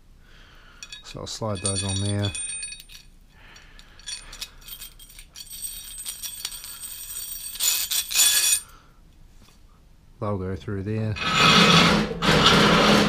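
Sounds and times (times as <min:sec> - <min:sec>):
metal bearings clinking on pipe: 0:00.7 - 0:08.7
metal-on-metal scrape: 0:07.5 - 0:08.7, 0:11.2 - 0:13.0.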